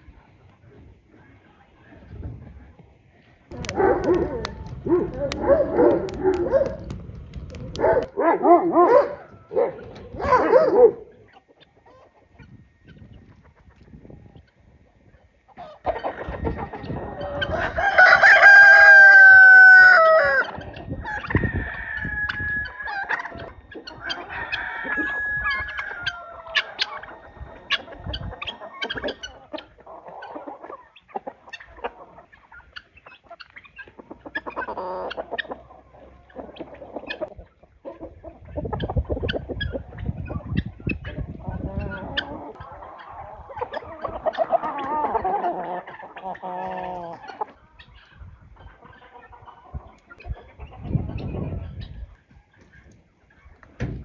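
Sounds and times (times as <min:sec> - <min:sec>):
chickens clucking: 0:00.0 - 0:54.0
beaks pecking ground: 0:03.2 - 0:08.2, 0:20.4 - 0:53.8
rooster crowing: 0:15.8 - 0:29.3.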